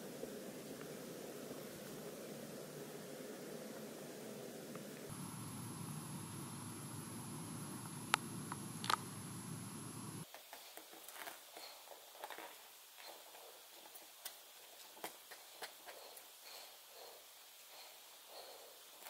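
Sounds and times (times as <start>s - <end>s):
steady low hiss: 0.0s - 19.0s
sharp clicks: 7.8s - 9.2s.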